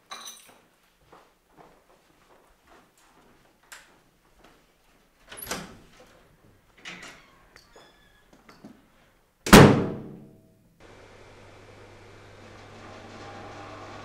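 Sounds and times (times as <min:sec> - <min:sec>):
door slamming shut: 0:09.5 - 0:10.2.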